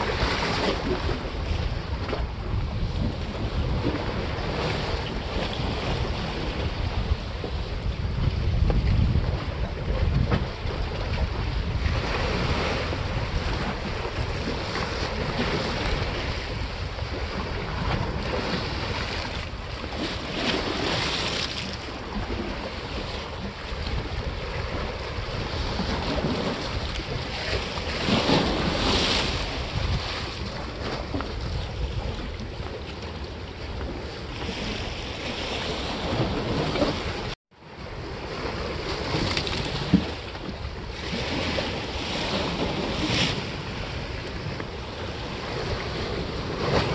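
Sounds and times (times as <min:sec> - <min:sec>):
waves washing against stone: 0:00.0 - 0:37.4
wind buffeting microphone: 0:00.0 - 0:46.9.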